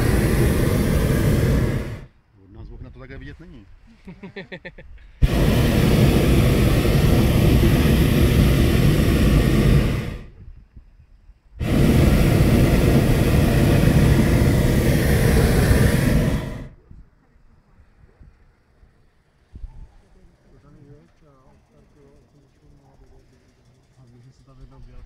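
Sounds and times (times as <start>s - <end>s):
propane burner blasts: 0.0s - 2.8s, 5.2s - 10.5s, 11.5s - 16.8s.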